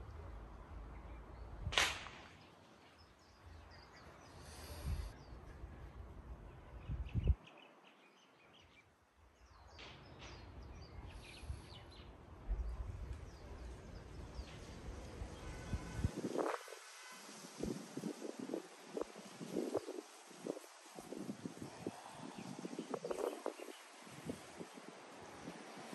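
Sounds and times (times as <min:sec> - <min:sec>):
sharp brief swish: 0:01.7 - 0:02.4
wind rumble on microphone: 0:04.5 - 0:05.2, 0:06.6 - 0:07.5, 0:10.6 - 0:25.9.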